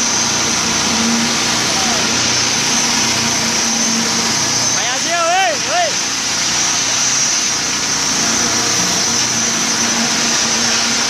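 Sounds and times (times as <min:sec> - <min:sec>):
low hum: 0:00.0 - 0:04.8
construction machinery drone: 0:00.0 - 0:11.0.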